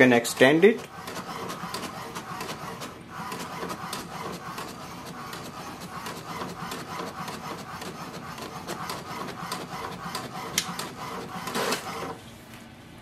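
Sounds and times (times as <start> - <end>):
inkjet printer clicking: 0.0 - 12.2.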